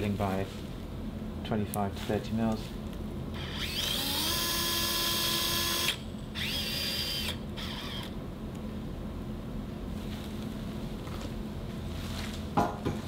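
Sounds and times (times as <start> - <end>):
power drill motor whine: 3.3 - 8.2.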